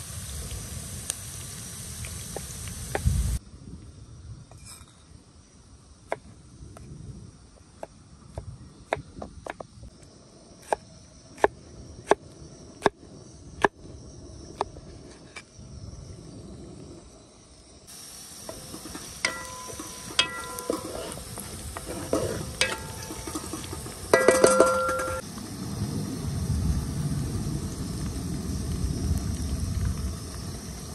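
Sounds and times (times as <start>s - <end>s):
onions sizzling in oil: 0.0s - 3.4s, 17.7s - 30.9s
metal utensil clinking pot: 18.6s - 25.2s.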